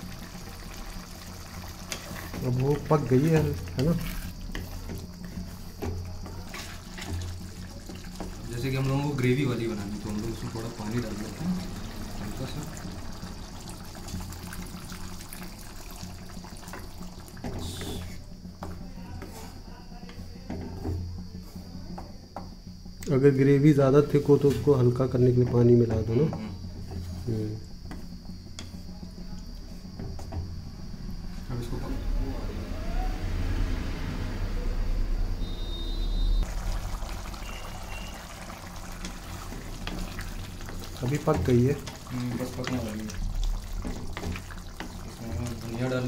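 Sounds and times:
wooden spatula stirring and scraping: 0.0 - 12.1, 14.0 - 22.0, 37.4 - 46.0
gravy bubbling in a pan: 0.0 - 19.0, 35.4 - 46.0
low hum: 30.6 - 41.0.

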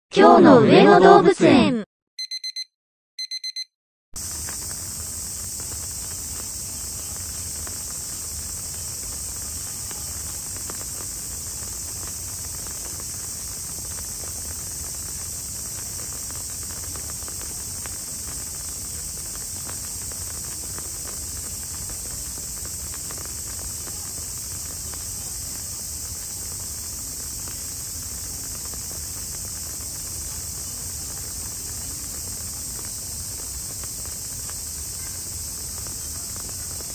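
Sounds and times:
short electronic beeps: 2.2 - 3.7
high-pitched insect chorus: 4.2 - 36.9.

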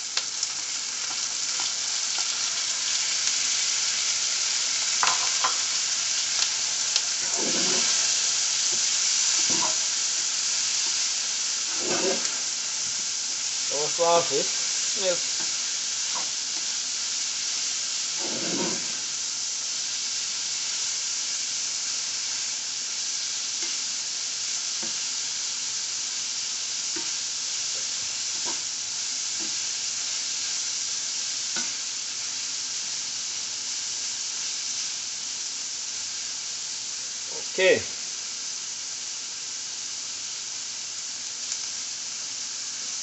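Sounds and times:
food sizzling in a frying pan: 0.0 - 43.0
spatula scraping and tapping pan: 5.0 - 5.6, 7.2 - 8.0, 9.4 - 9.8, 11.7 - 12.4, 18.2 - 19.0.

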